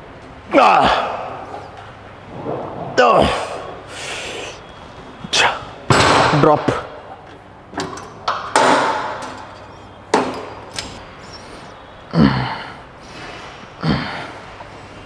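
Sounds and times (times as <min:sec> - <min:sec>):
person grunting: 0:02.9 - 0:03.8, 0:12.1 - 0:12.7, 0:13.8 - 0:14.4
person exhaling forcefully: 0:02.9 - 0:04.6.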